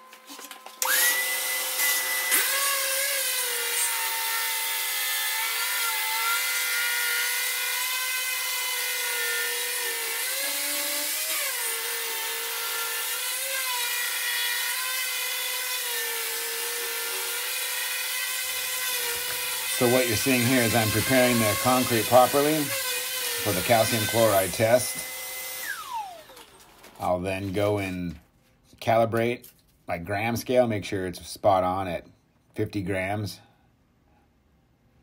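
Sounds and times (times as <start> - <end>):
concrete grinder whining: 18.1 - 27.0.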